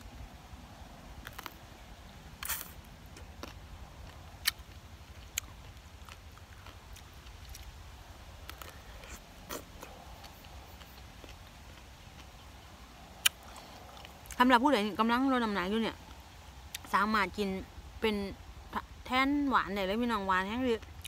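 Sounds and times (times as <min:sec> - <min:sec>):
fruit being bitten and chewed: 0:00.0 - 0:17.5.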